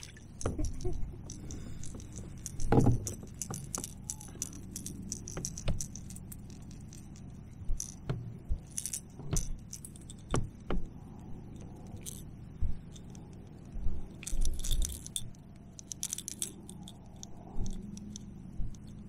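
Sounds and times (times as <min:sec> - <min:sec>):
fishing hooks rattling and clicking: 0:00.0 - 0:19.0.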